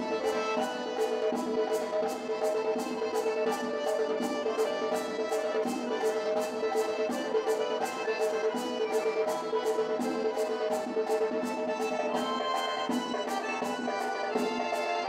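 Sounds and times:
accordion folk tune: 0.0 - 15.0
sharp steady beat: 0.0 - 15.0.

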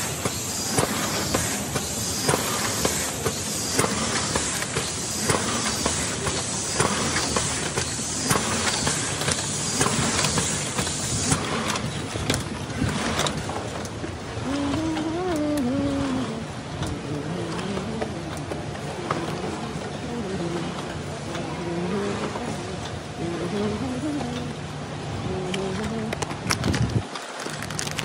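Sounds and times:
sharp machine knock: 0.0 - 13.8
machine mechanical clatter: 0.0 - 28.0.

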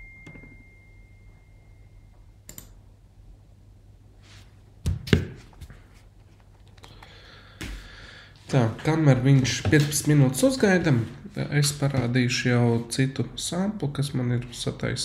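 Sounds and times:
low hum: 0.0 - 4.0.

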